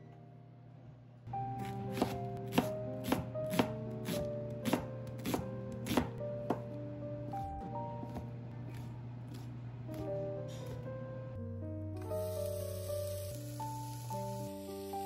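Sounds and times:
soft piano music: 0.0 - 15.0
knife chopping on wooden board: 1.6 - 6.7.

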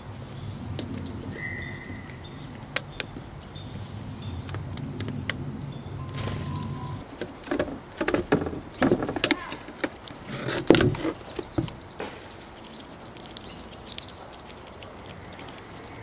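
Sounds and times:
squirrel scrabbling on concrete: 6.1 - 16.0.

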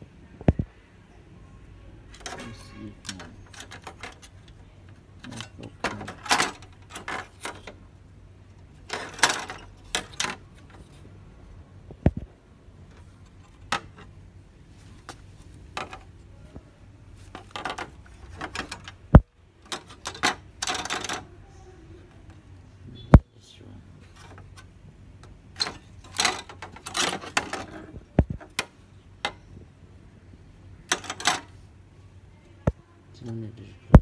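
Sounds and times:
circuit board rattling against metal: 2.1 - 7.8, 8.8 - 11.0, 12.9 - 14.2, 17.2 - 21.4, 24.2 - 29.5, 30.8 - 31.6.

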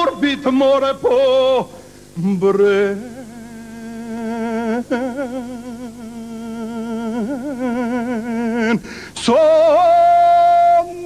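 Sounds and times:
man singing held wavering notes: 0.0 - 11.0.

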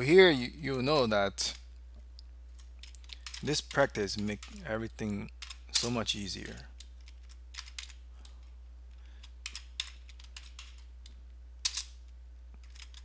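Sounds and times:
low steady hum: 0.0 - 13.0
computer keyboard typing: 7.0 - 8.0.

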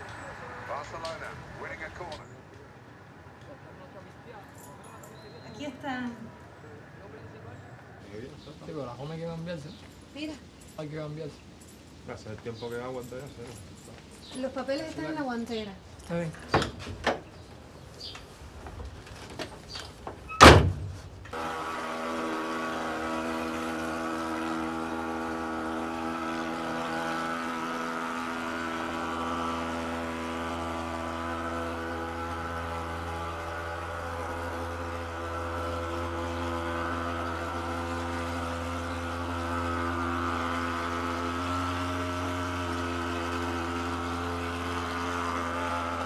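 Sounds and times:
car door shutting: 20.2 - 21.0
fogging machine engine drone: 21.4 - 46.0.

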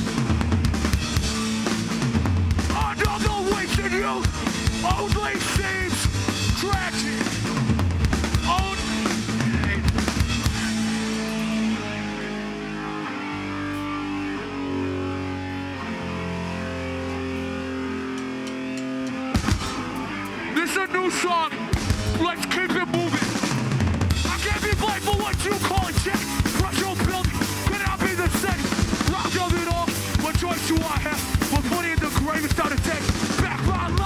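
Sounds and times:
pounding drums: 0.0 - 11.5, 21.7 - 34.0
electric guitars and bass: 0.0 - 34.0
shouted vocals: 2.7 - 7.3.

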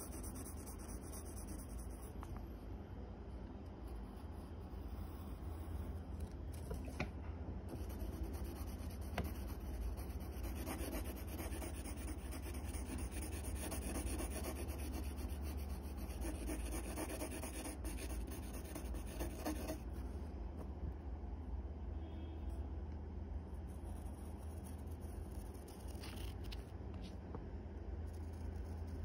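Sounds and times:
pencil scratching on paper: 0.0 - 2.3, 7.7 - 20.0
low steady hum: 0.0 - 29.0.

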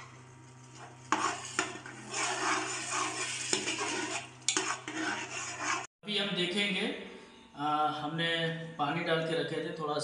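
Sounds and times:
spoon scraping and stirring: 0.4 - 5.9.

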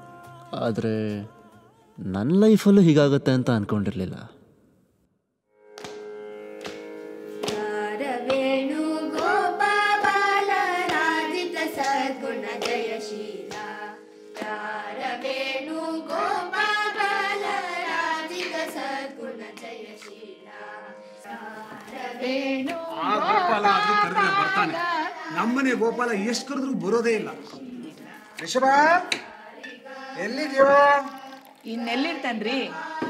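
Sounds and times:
person singing: 0.0 - 2.1, 20.1 - 26.3.

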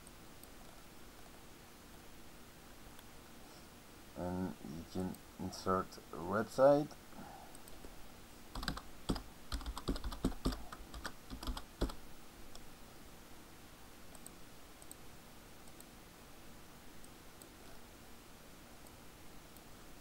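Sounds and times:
typing on a computer keyboard: 8.6 - 12.0
faint clicks: 14.1 - 15.0, 15.6 - 15.9.

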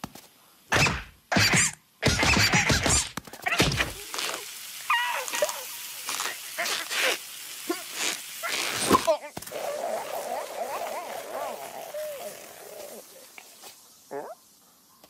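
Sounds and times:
squeaky wavering cry: 4.8 - 5.8.

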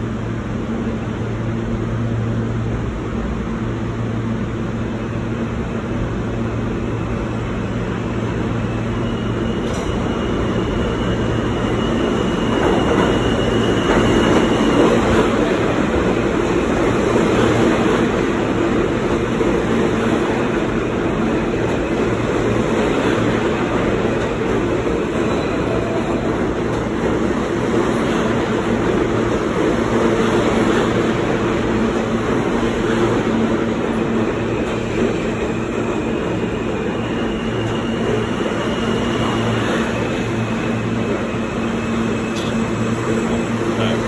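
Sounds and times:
subway train rumbling into station: 0.0 - 44.0.

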